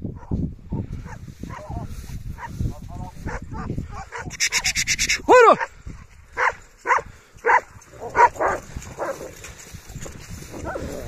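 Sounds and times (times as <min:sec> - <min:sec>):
dogs barking and snarling: 0:00.2 - 0:02.6, 0:03.2 - 0:11.0
dog yelping: 0:03.3 - 0:05.7.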